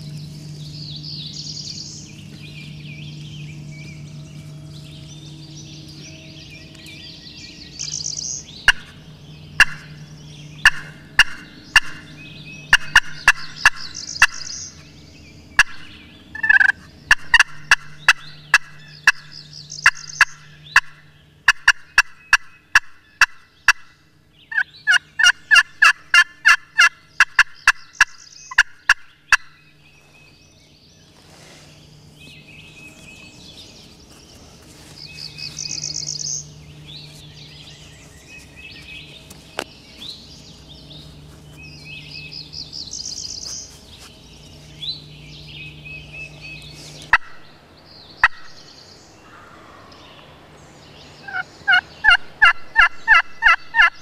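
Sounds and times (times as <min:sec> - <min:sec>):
turkey gobbling: 0:08.6 - 0:08.9, 0:09.6 - 0:10.0, 0:10.6 - 0:12.1, 0:12.7 - 0:14.4, 0:15.6 - 0:23.9, 0:24.5 - 0:29.5, 0:51.2 - 0:54.0
turkey call yelps: 0:09.6 - 0:09.9, 0:16.4 - 0:23.9, 0:51.2 - 0:54.0.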